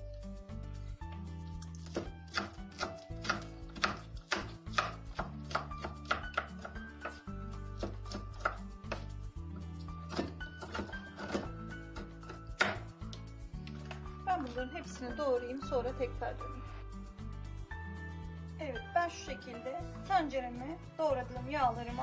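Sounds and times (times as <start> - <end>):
background music: 0.0 - 22.0
knife chopping on wooden board: 1.8 - 9.2, 10.0 - 12.9.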